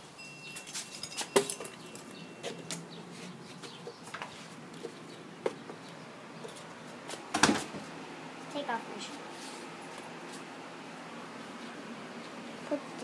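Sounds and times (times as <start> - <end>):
door clicks and knocks: 7.3 - 7.8.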